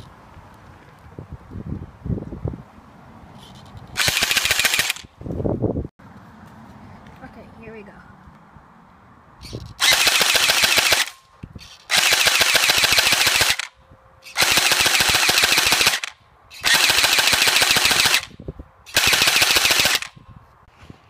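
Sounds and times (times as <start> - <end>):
airsoft rifle firing full auto: 4.0 - 5.1, 9.8 - 11.2, 11.9 - 13.7, 14.4 - 18.3, 18.9 - 20.1.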